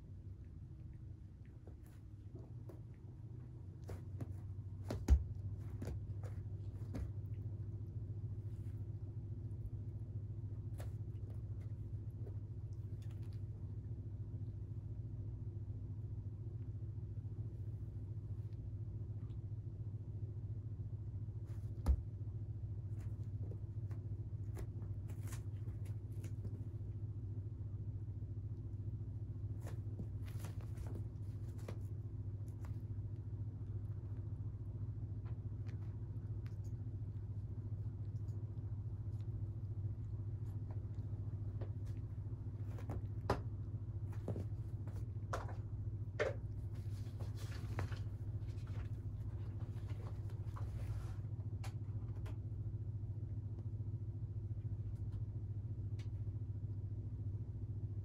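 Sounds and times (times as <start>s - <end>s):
steady low hum: 0.0s - 58.0s
faint rustles: 29.3s - 52.4s.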